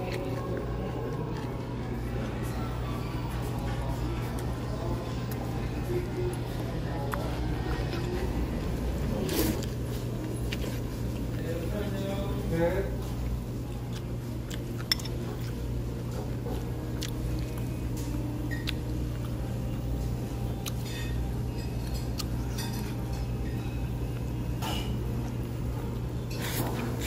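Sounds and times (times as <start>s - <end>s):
low room hum: 0.0s - 27.0s
utensils clinking on ceramic bowl: 14.8s - 15.5s, 20.8s - 23.8s.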